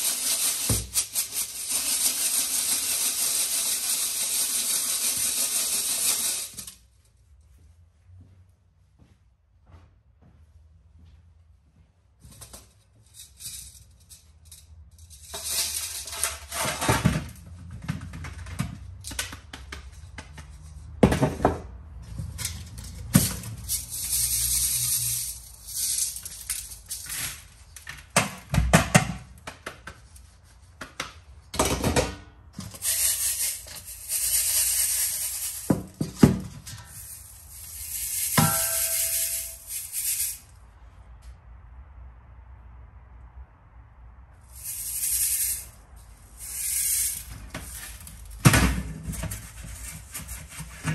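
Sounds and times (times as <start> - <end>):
rough scraping hiss: 32.8 - 35.8, 44.4 - 48.3
metal clinking and knocking: 35.4 - 39.9
struck metal ringing: 38.4 - 39.4.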